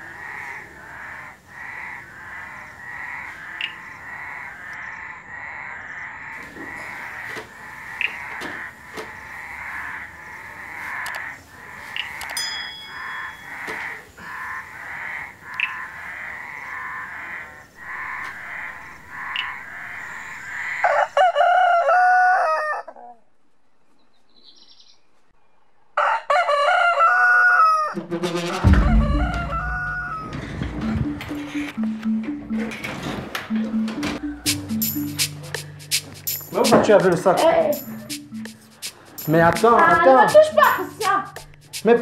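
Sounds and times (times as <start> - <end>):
high-pitched animal chorus: 0.0 - 21.0, 34.0 - 42.0
rooster crowing: 19.8 - 23.2, 26.0 - 28.0, 28.6 - 30.5
music with deep bass: 30.8 - 32.9, 33.5 - 42.0.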